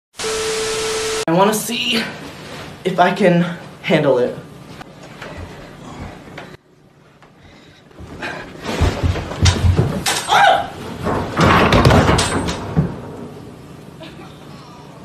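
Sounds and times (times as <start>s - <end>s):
knocks and thuds down stairs: 8.0s - 10.4s, 11.0s - 13.0s
person yelping: 10.3s - 10.8s.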